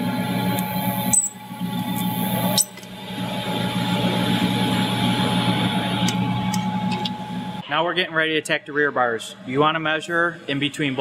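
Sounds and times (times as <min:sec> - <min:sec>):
welding arc buzzing: 0:00.0 - 0:07.6.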